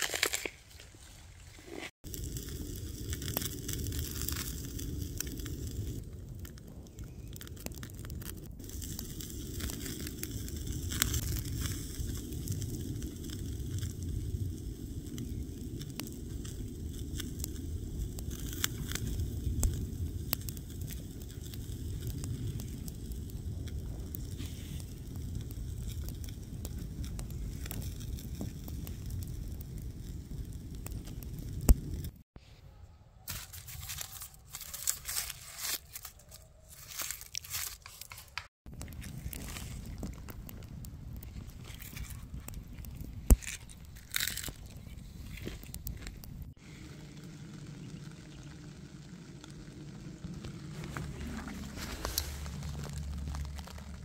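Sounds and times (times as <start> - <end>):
campfire crackling and popping: 0.0 - 0.8, 1.4 - 32.3, 33.3 - 54.0
low fire rumble: 1.0 - 32.3, 38.4 - 54.0.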